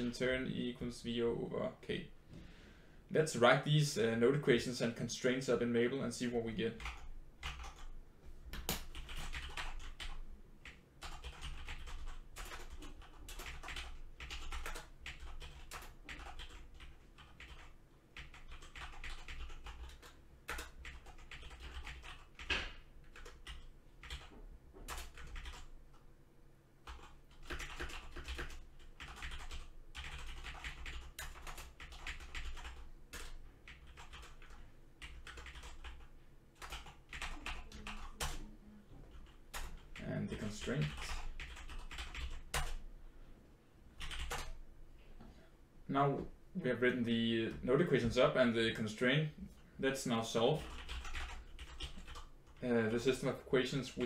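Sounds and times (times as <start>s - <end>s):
typing on keyboard: 6.8s - 7.9s, 8.6s - 24.3s, 24.9s - 26.0s, 26.8s - 38.4s, 39.2s - 39.8s, 40.6s - 42.8s, 44.0s - 44.6s, 50.6s - 52.6s.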